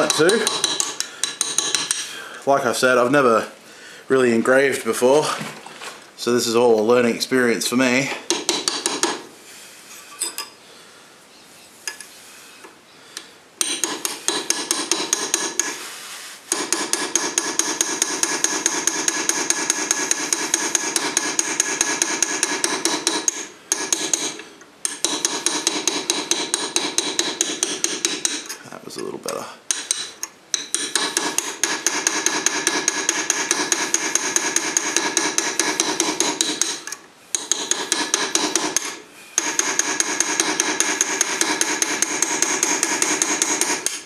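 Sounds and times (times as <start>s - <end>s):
small hammer tapping on metal: 0.0s - 2.1s, 8.3s - 9.2s, 16.5s - 28.6s, 29.7s - 44.0s.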